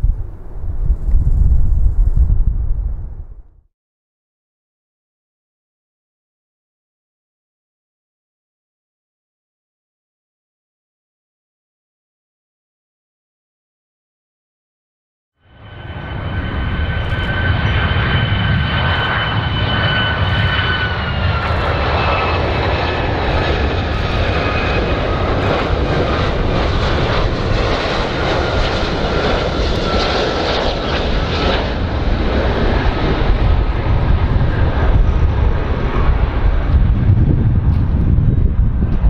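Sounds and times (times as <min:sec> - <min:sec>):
jet engine whine: 0:00.0 - 0:03.6, 0:15.4 - 0:39.0
jet engine low rumble: 0:00.0 - 0:03.7, 0:15.4 - 0:39.0.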